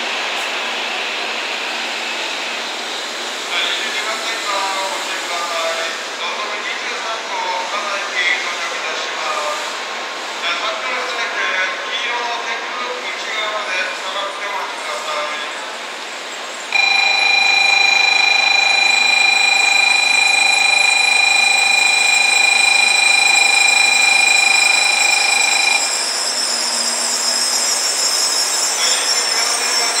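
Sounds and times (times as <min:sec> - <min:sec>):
steady high tone: 0:16.8 - 0:26.3.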